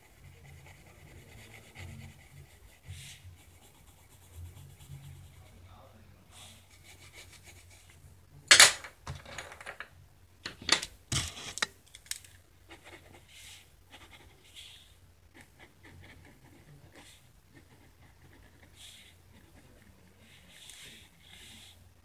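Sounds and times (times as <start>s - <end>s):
pencil scratching on paper: 0.0s - 5.7s, 6.3s - 8.0s, 12.7s - 21.9s
pen strokes on paper: 0.0s - 8.0s, 12.7s - 21.8s.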